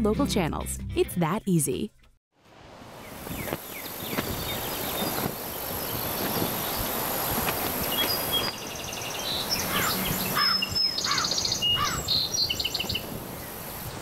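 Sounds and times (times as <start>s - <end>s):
steady hiss: 2.6s - 9.5s, 13.0s - 14.0s
songbirds chirping and trilling: 3.0s - 13.9s.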